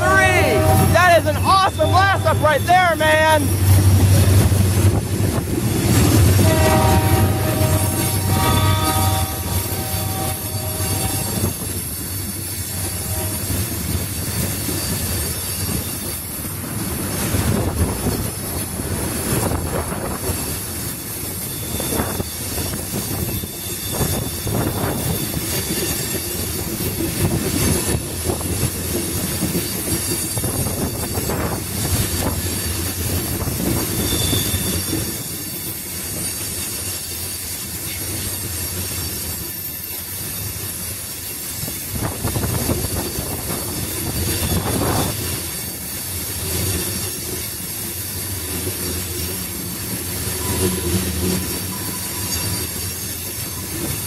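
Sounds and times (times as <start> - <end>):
freight train wheels rumbling: 0.0 - 54.0
high wheel squeal: 6.4 - 16.3, 21.2 - 27.0, 32.2 - 41.8, 42.4 - 54.0.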